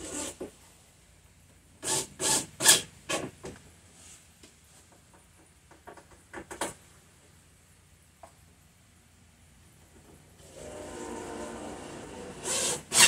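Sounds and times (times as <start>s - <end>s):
cordless drill drilling into wood: 10.4s - 13.0s.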